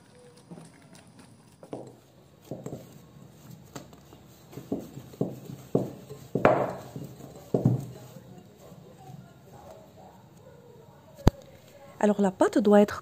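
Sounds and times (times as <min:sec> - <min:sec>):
dough kneaded by hand thudding: 0:01.6 - 0:11.4.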